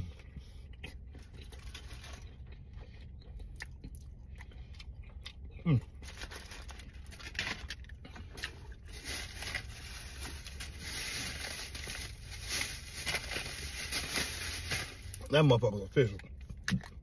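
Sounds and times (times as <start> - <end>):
packaging rustling and crinkling: 6.0 - 15.2.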